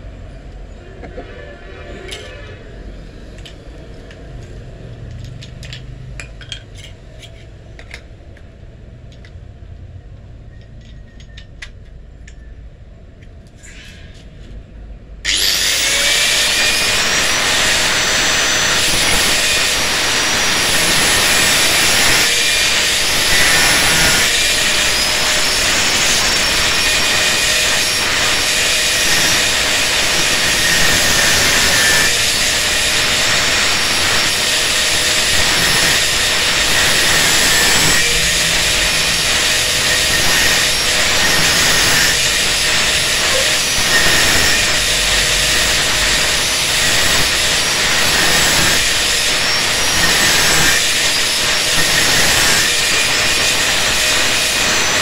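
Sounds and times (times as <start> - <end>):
angle grinder cutting steel: 1.0 - 4.1, 15.3 - 55.0.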